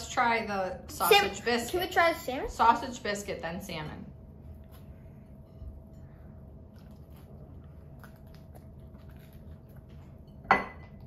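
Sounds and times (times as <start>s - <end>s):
children chewing and biting: 6.6s - 10.4s.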